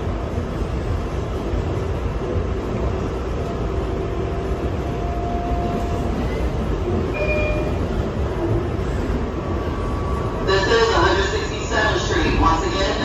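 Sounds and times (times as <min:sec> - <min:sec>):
wheels rumbling on rail: 0:00.0 - 0:13.0.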